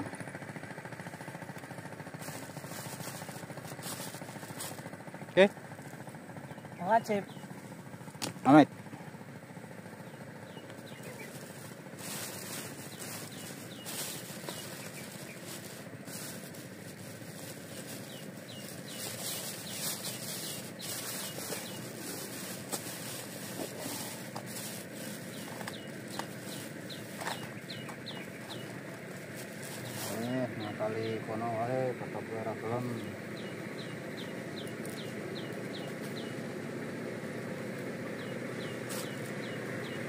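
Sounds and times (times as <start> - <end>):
bird chirping: 6.4 - 7.6, 10.0 - 11.5, 12.4 - 15.4, 17.9 - 22.3, 25.2 - 28.9, 32.9 - 36.5, 38.1 - 40.0
cloth sack rustling: 11.2 - 30.4.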